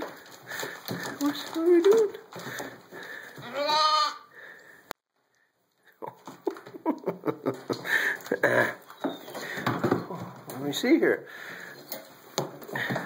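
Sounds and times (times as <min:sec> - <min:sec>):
rustling in plastic pet carrier: 0:00.0 - 0:03.8
lamb bleating: 0:03.4 - 0:04.3.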